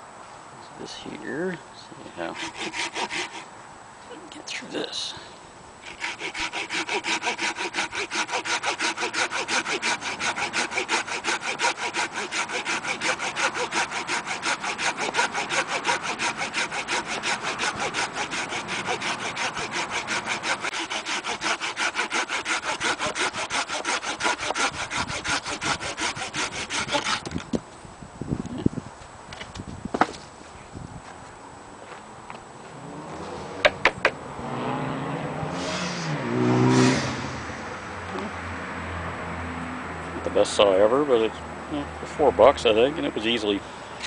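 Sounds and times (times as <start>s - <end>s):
hand saw cutting a branch: 2.2s - 3.5s, 5.8s - 27.5s.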